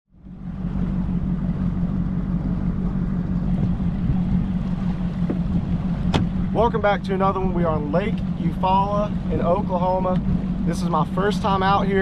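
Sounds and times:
outboard motor humming: 0.1s - 12.0s
water noise: 0.1s - 12.0s
wind: 0.1s - 12.0s.

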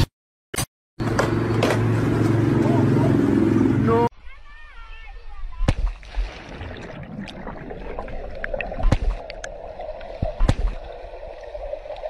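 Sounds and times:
muffled underwater rushing water: 5.9s - 12.0s.

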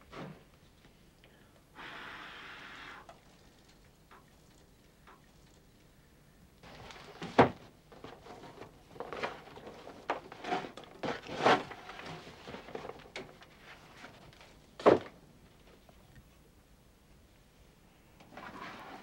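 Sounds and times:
box knocks and thuds: 7.2s - 7.7s, 14.8s - 15.1s.

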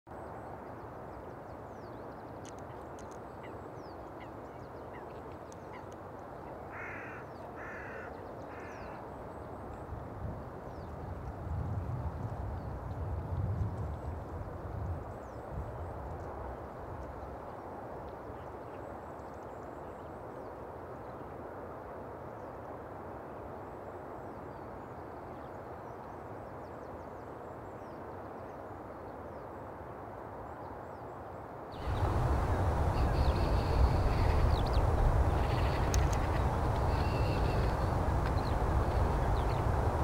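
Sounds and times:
steady low hiss: 0.1s - 40.0s
wind rumble on microphone: 8.6s - 20.2s, 31.8s - 40.0s
bird chirps: 32.9s - 38.6s.

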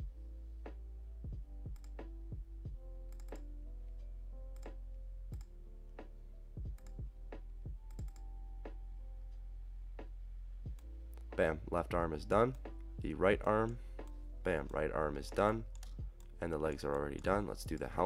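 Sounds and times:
steady low drone: 0.0s - 18.0s
sharp clicks: 3.1s - 3.5s, 15.7s - 17.9s.

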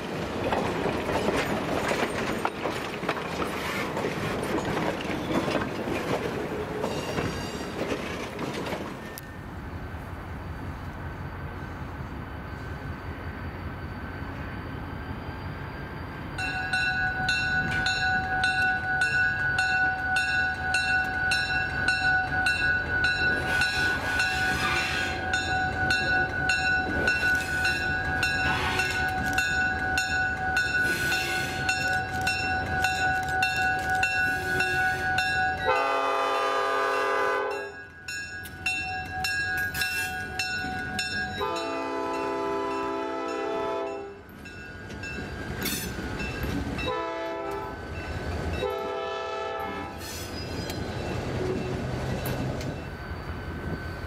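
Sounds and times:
diesel locomotives rumbling past: 0.0s - 54.0s
locomotive bell ringing: 16.3s - 36.5s, 37.4s - 54.0s
train air horn blast: 23.5s - 25.2s, 28.5s - 29.0s, 35.7s - 37.7s, 41.4s - 44.1s, 46.9s - 47.7s, 48.6s - 50.0s.

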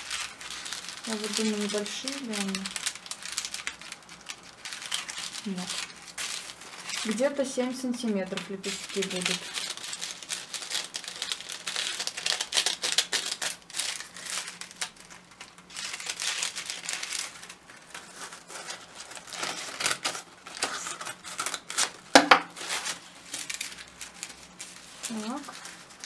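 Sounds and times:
scissors snipping paper: 0.0s - 17.4s
paper rustling: 0.0s - 26.0s.

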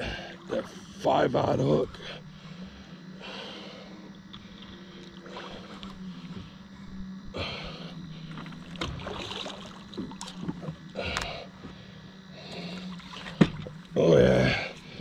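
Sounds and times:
low steady hum: 0.0s - 15.0s
fishing reel clicks and rustling: 4.1s - 6.4s.

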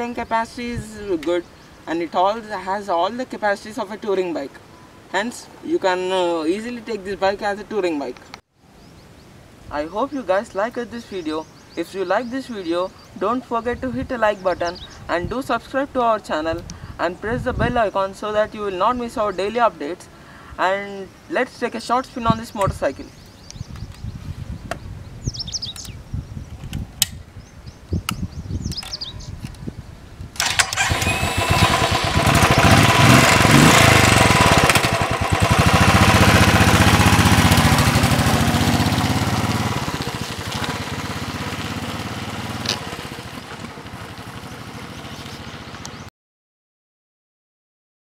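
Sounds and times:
motorcycle engine revving: 30.4s - 46.1s.

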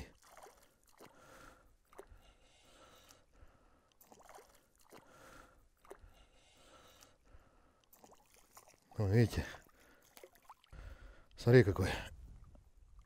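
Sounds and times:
fish splashing in water: 0.1s - 2.1s, 4.0s - 6.0s, 7.9s - 9.0s.

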